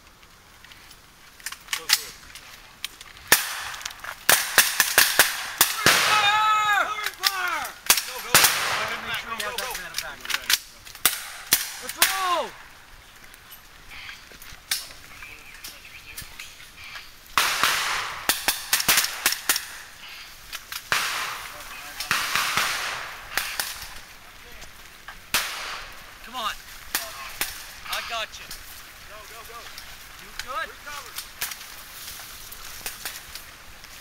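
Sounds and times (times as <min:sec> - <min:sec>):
rifle shots: 0:03.3 - 0:06.4, 0:07.9 - 0:09.7, 0:17.4 - 0:19.9, 0:20.9 - 0:24.0, 0:25.3 - 0:26.1
people shouting: 0:05.2 - 0:09.8, 0:11.6 - 0:12.7.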